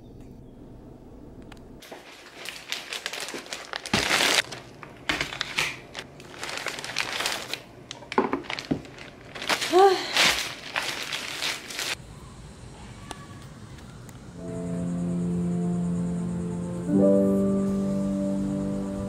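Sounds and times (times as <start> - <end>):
steady low car hum: 0.0 - 1.8
grocery bags rustling: 1.8 - 12.0
groceries set down on counter: 8.0 - 11.6.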